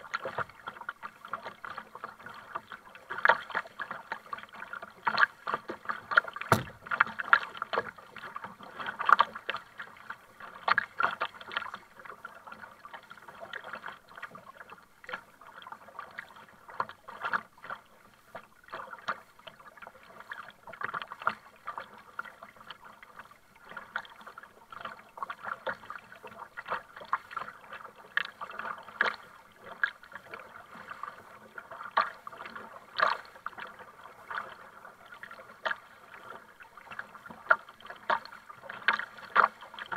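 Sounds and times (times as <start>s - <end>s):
paddle splashing: 0.0s - 39.9s
water lapping against hull: 0.0s - 39.9s
sharp knock: 6.5s - 7.0s.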